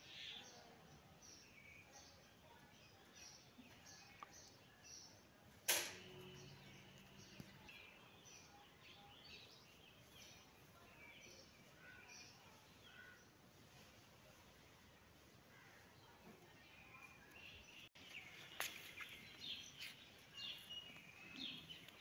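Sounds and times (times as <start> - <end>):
small birds chirping: 0.0 - 22.0
sharp click: 5.7 - 6.1.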